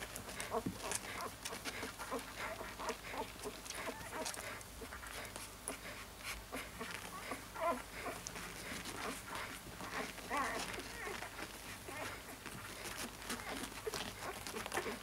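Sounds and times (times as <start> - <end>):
puppy snuffling breaths: 0.0 - 15.0
puppy squeaking: 6.5 - 15.0.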